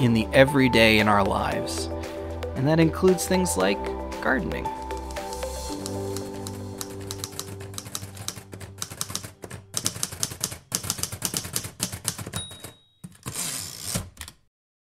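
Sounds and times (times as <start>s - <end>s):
typewriter keys clacking: 5.0s - 14.5s
typewriter bell ringing: 8.2s - 13.8s.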